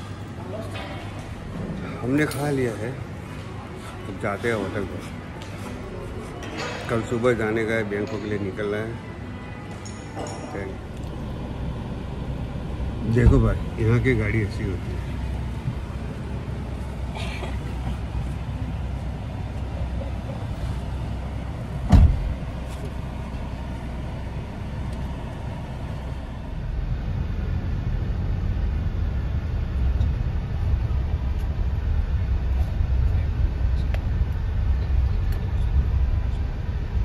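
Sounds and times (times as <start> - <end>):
van road and engine rumble: 10.6 - 37.0
sharp thump: 21.9 - 22.4.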